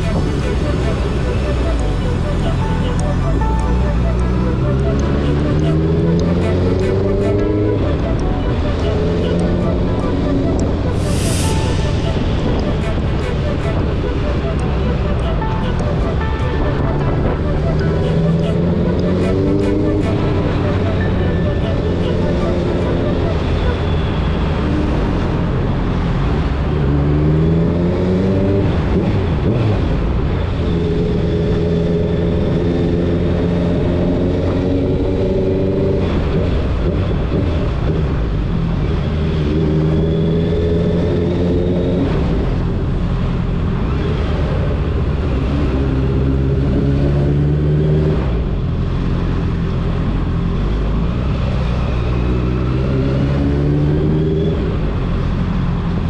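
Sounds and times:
wind rushing: 8.6 - 23.6.

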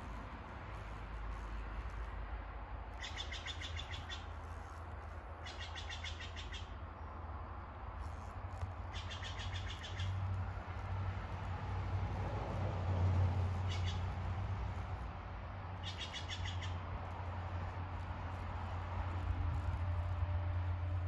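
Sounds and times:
bird calling in rapid trills: 3.0 - 4.4, 5.4 - 6.8, 8.8 - 10.2, 13.6 - 14.2, 15.8 - 16.8.

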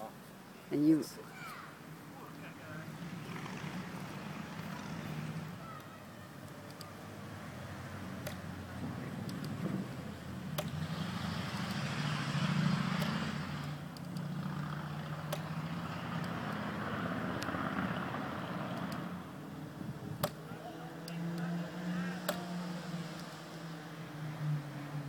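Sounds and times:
sharp clicks: 5.8 - 7.0, 8.2 - 9.7, 10.4 - 12.1, 12.9 - 17.9, 18.7 - 19.2, 20.1 - 21.5, 22.2 - 23.4.

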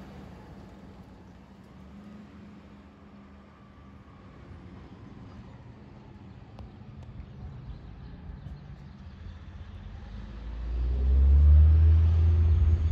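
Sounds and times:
fire engine diesel engine rumble: 0.0 - 3.9.

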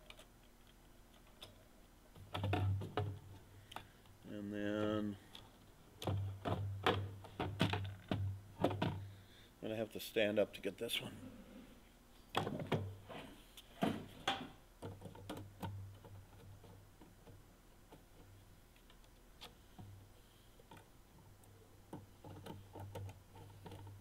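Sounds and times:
clicks and taps of wires and parts: 0.0 - 4.2, 13.6 - 19.9, 20.6 - 24.0.

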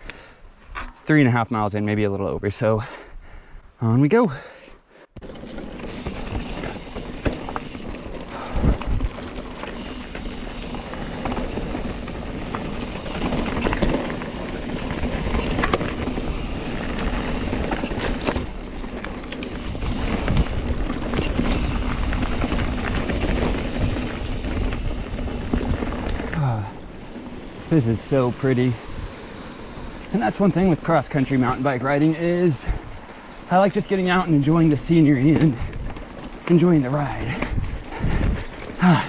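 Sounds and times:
bike rattles and knocks: 5.2 - 28.6, 33.7 - 39.0
bike tyres rolling over dirt and rocks: 5.2 - 39.0
wind noise on microphone: 5.8 - 18.7, 19.4 - 26.4, 37.2 - 38.8.

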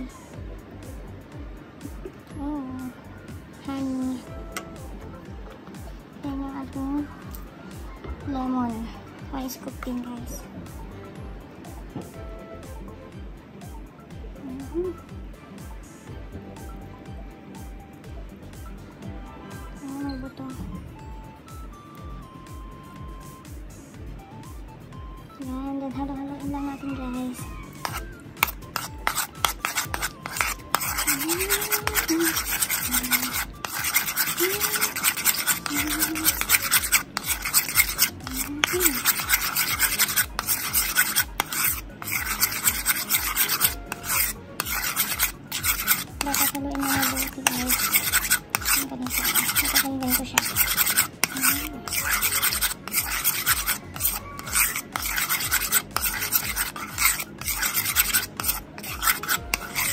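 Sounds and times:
metal spoon scraping ceramic bowl: 27.6 - 59.9.

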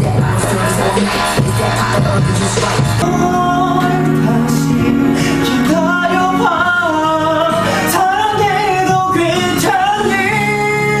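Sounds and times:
instrumental backing track: 0.0 - 11.0
man singing: 0.0 - 11.0.

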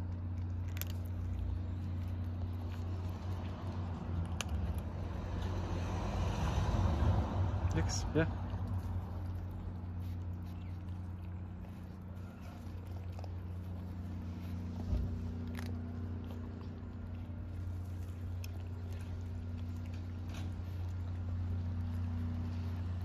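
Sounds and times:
cats crunching kibble: 0.0 - 23.0
steady low hum: 0.0 - 23.0.

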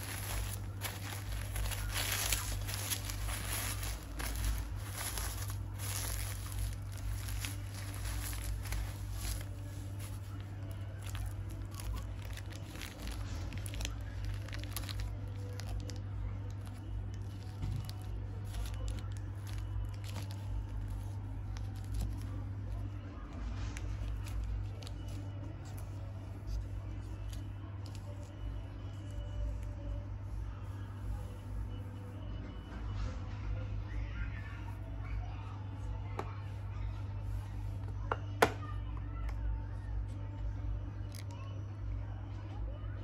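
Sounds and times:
plastic packets clicking: 0.0 - 22.2
bubble wrap crinkling: 0.0 - 32.3
steady low hum: 0.0 - 43.0.

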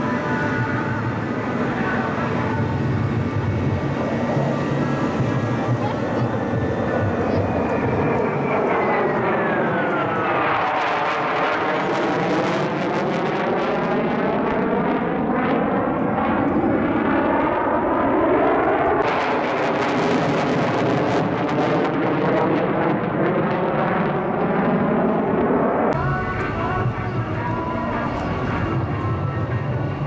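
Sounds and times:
jet fighter flying: 0.0 - 30.0.

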